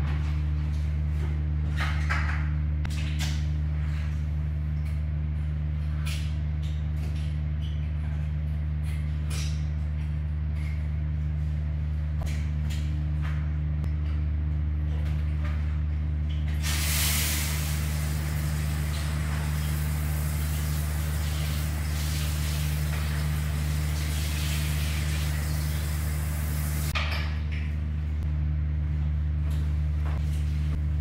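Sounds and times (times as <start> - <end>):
steady low hum: 0.0 - 31.0
shower head spraying water: 16.6 - 27.0.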